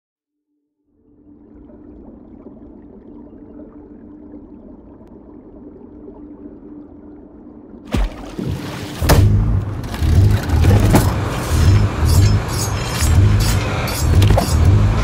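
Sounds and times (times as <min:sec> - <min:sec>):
faint steady hum: 0:01.0 - 0:08.4
loud water splash: 0:07.9 - 0:10.2.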